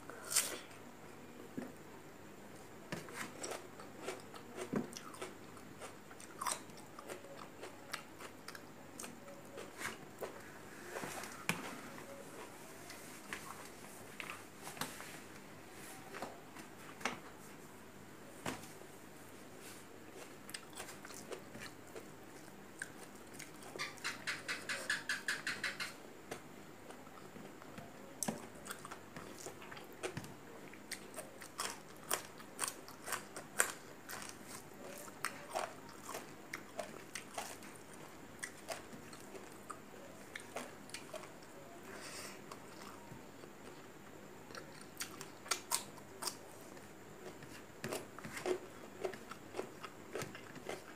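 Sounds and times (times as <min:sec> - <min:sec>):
chewing and crunching vegetables: 0:02.9 - 0:10.5, 0:20.1 - 0:25.8, 0:26.8 - 0:41.7, 0:42.5 - 0:50.9.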